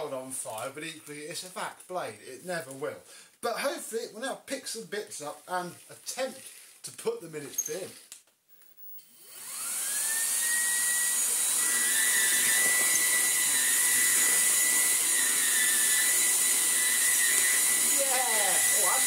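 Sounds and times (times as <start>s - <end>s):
vacuum motor whine: 9.2s - 19.0s.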